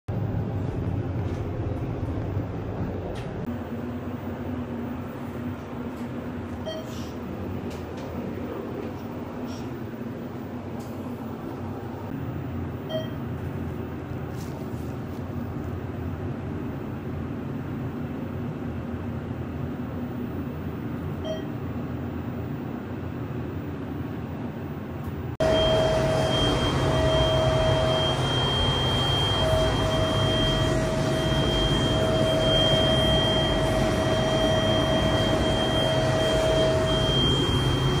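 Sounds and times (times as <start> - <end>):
elevator machinery humming: 0.1 - 14.4, 15.3 - 38.0
pump whine: 25.4 - 38.0.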